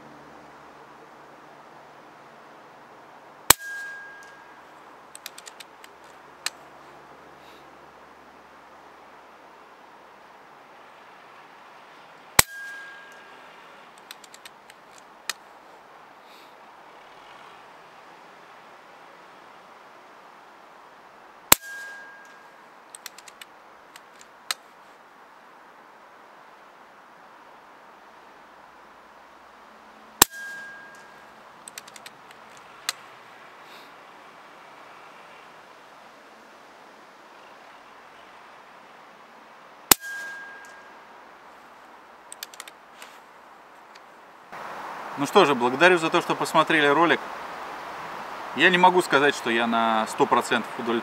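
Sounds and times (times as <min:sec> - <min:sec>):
air rifle shot with ringing tone: 0:03.5 - 0:04.6, 0:12.4 - 0:13.4, 0:21.5 - 0:22.5, 0:30.2 - 0:31.3, 0:39.9 - 0:41.0
rifle action clicks: 0:05.1 - 0:06.6, 0:14.0 - 0:15.4, 0:21.5 - 0:24.6, 0:30.3 - 0:33.0, 0:42.3 - 0:43.2.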